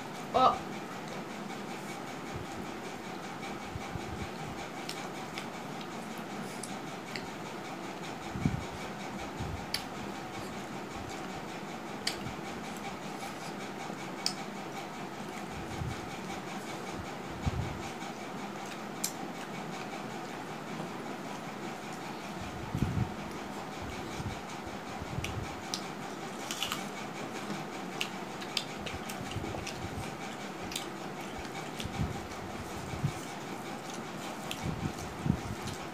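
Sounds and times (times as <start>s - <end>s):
mouths chewing: 25.1s - 35.9s.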